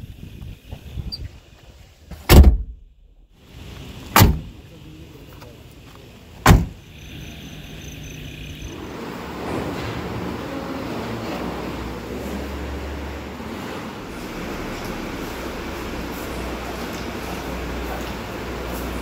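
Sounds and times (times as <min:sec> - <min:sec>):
vehicle doors shutting: 0:02.1 - 0:02.8, 0:03.6 - 0:04.7, 0:06.4 - 0:19.0
vehicle engine running: 0:02.9 - 0:19.0.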